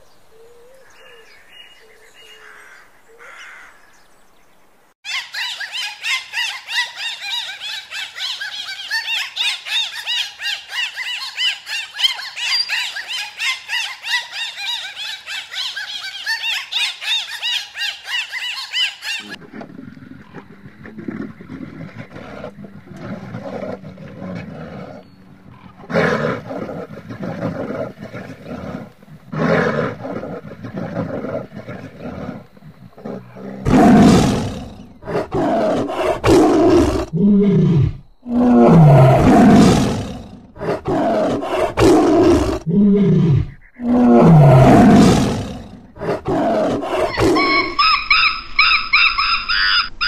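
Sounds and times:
bear grunting and growling: 0:19.2 - 0:47.8
bear roaring: 0:19.2 - 0:47.8.

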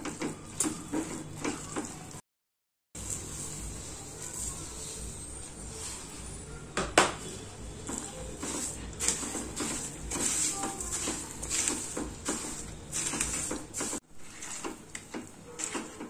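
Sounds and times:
spatula scraping a pan: 0:03.0 - 0:06.4, 0:07.2 - 0:16.0.

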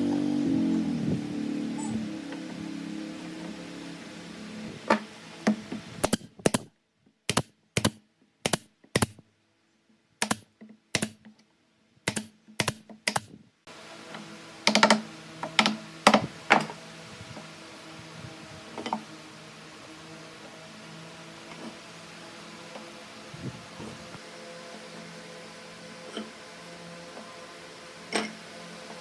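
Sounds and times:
nail gun firing: 0:04.9 - 0:06.7, 0:07.3 - 0:09.2, 0:10.2 - 0:11.3, 0:12.0 - 0:13.4.

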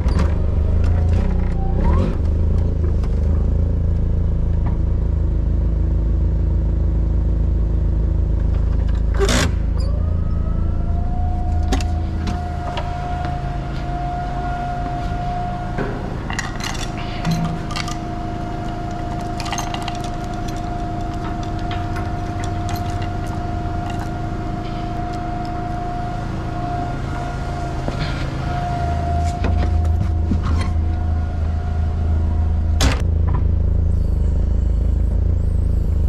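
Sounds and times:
forklift engine running: 0:00.0 - 0:36.0
lifting chain clinking: 0:16.2 - 0:25.8.

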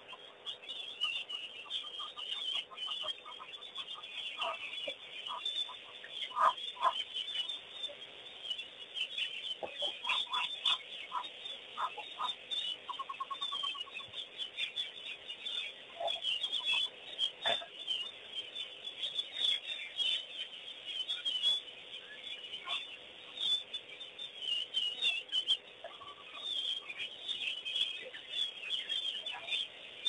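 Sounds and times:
wild birds chirping: 0:00.0 - 0:30.0
fowl-like clucks: 0:01.0 - 0:07.1, 0:09.6 - 0:14.1, 0:15.9 - 0:17.8, 0:22.6 - 0:22.9.

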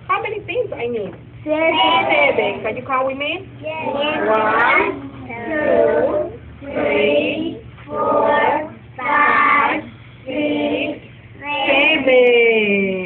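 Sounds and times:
child and adult counting in chant: 0:03.6 - 0:12.1.

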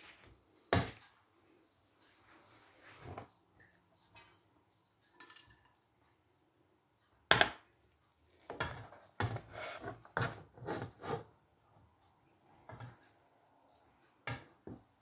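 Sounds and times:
utensil scraping pot and plate: 0:08.6 - 0:11.3.

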